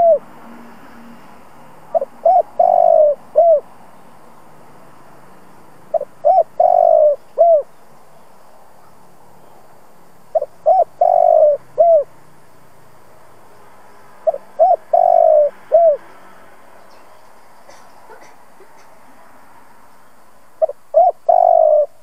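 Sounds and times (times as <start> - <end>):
dove cooing: 0.0 - 0.3, 1.9 - 3.7, 5.9 - 7.7, 10.3 - 12.1, 14.2 - 16.0, 17.7 - 19.0, 20.6 - 22.0.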